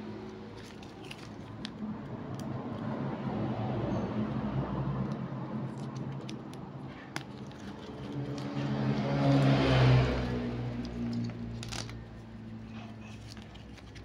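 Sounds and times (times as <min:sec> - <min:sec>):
plastic packaging rustling: 0:12.9 - 0:14.0.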